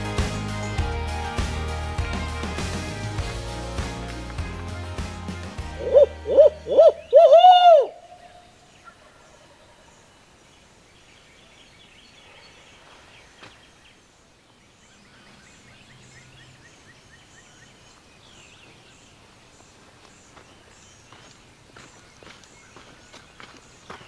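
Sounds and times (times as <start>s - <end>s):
owl hooting: 5.8s - 9.3s
faint songbird chirps: 5.8s - 24.0s.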